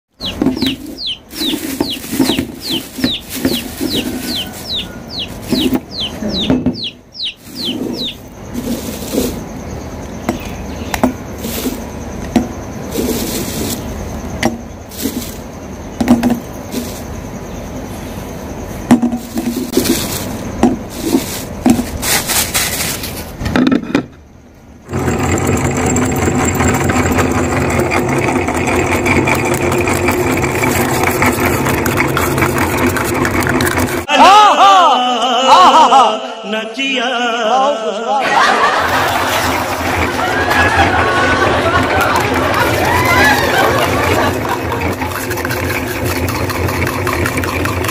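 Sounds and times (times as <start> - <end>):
plastic bag crinkling: 0.2 - 6.4, 7.3 - 9.4, 19.3 - 23.4
electric meat grinder running: 24.9 - 34.0, 39.1 - 47.9.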